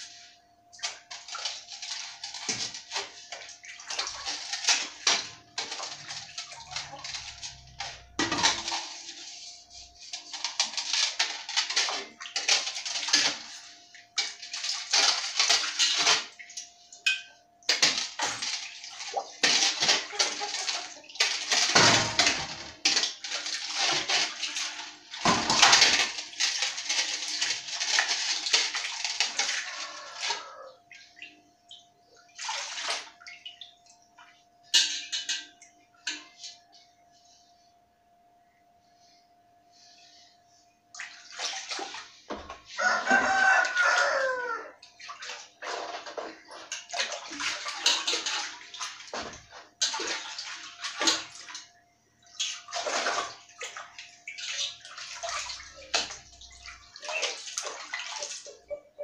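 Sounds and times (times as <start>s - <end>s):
water splashing in basin: 0.1s - 17.0s, 17.7s - 36.3s, 40.9s - 59.0s
faint steady hum: 33.2s - 42.4s.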